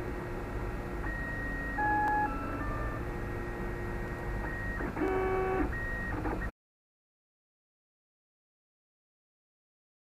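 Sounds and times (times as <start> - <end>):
steady low hum: 0.0 - 6.5.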